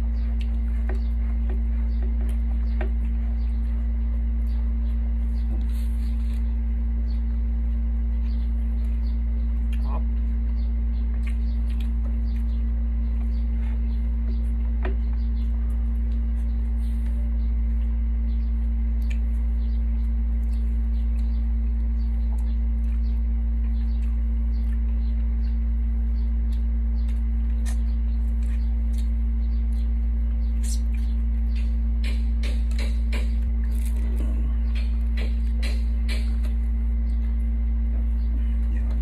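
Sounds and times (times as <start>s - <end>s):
low hum: 0.0s - 39.0s
people eating with hands: 0.0s - 39.0s.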